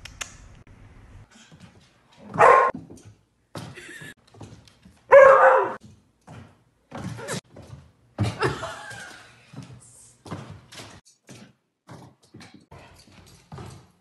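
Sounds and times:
dog barking: 2.3s - 2.8s, 5.1s - 5.8s.

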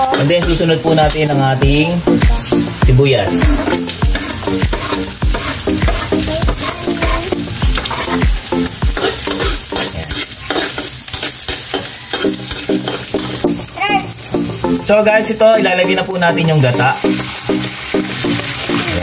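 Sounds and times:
spatula scraping a wok: 0.0s - 1.4s, 3.4s - 13.4s
food sizzling in hot oil: 0.0s - 19.0s.

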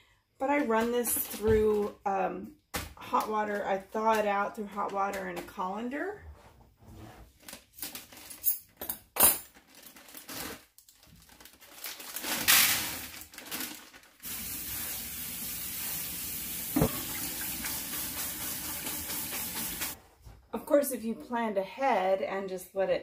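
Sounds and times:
frozen corn rattling into colander: 9.5s - 14.5s
faucet running into metal sink: 14.3s - 20.0s
knock: 16.8s - 17.1s.

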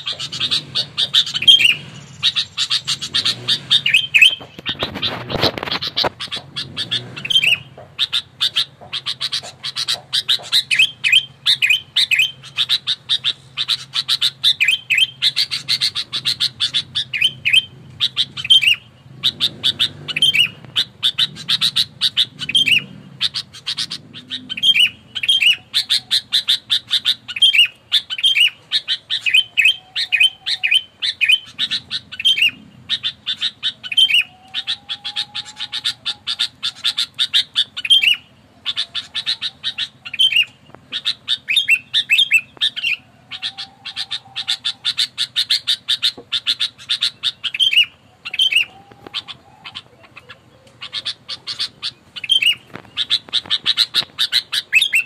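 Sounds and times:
bird chattering calls: 0.0s - 55.0s.

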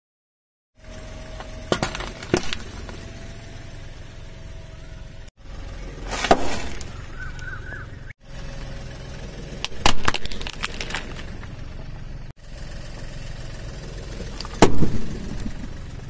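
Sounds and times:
car engine hum: 0.8s - 16.0s
tyre crushing chip bag: 6.0s - 7.0s, 9.6s - 11.5s
packet bursting under tyre: 9.2s - 12.0s, 13.4s - 16.0s.

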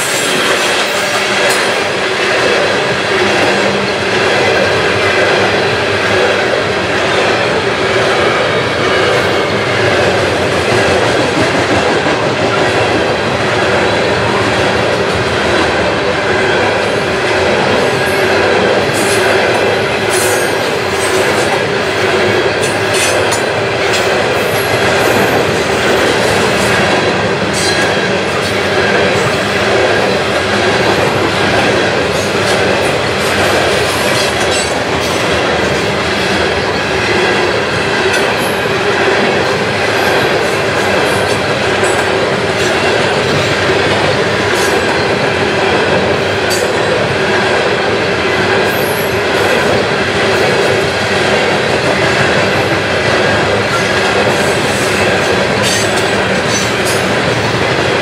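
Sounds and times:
steel wheels rolling on rails: 0.0s - 58.0s.

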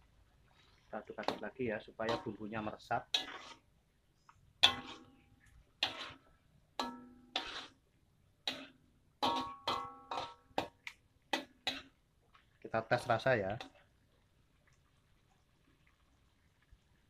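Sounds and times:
metal spatula scraping wok: 0.5s - 7.8s, 8.4s - 12.0s.

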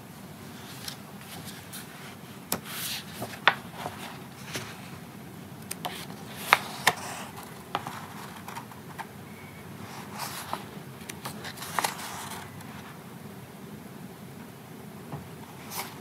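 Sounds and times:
paper rustling: 0.6s - 5.0s, 5.7s - 9.1s, 9.9s - 13.0s, 15.5s - 16.0s.

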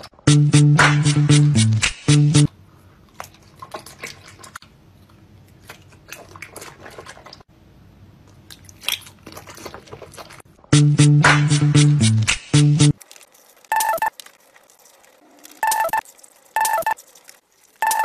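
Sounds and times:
man chewing candy: 13.0s - 18.0s.

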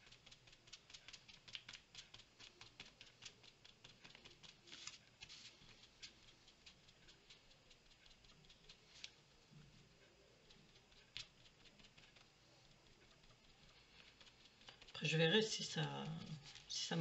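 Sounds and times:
paper being handled: 0.0s - 6.3s, 10.9s - 17.0s
applicator dabbing on paper: 0.0s - 17.0s.

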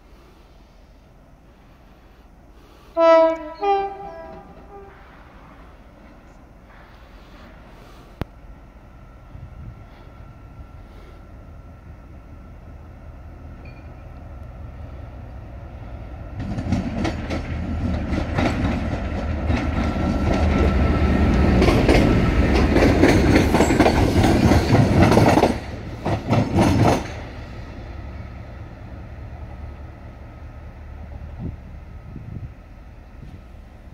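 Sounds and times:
train wheels clattering over rail joints: 16.3s - 27.4s.

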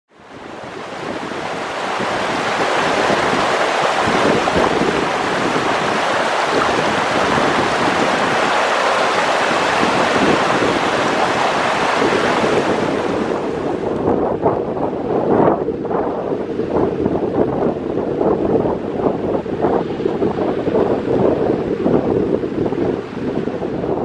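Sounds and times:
stream rushing over rocks: 0.2s - 14.0s.

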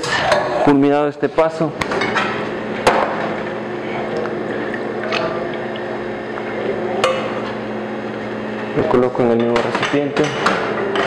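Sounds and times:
kitchen equipment humming: 0.0s - 11.0s
liquid pouring into bowl: 3.2s - 8.4s.

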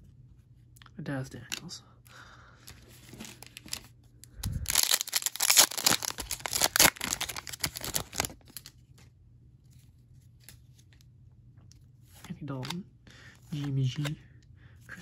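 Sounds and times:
foil wrapper tearing and crinkling: 4.6s - 8.7s.

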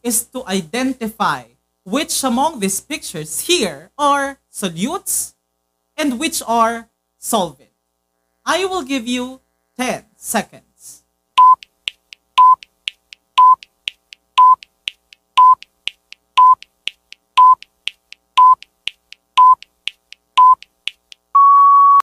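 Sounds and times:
short high beeps: 11.4s - 11.7s, 12.4s - 12.6s, 13.4s - 13.6s, 14.4s - 14.6s, 16.4s - 16.6s, 17.4s - 17.6s, 18.4s - 18.6s, 19.4s - 19.6s, 20.4s - 20.6s
faint high ticks: 11.6s - 21.3s.

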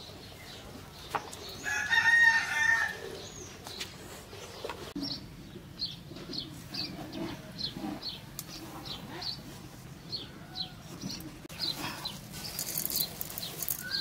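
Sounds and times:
rooster crowing: 1.6s - 3.1s
bird chirping: 3.1s - 14.0s.

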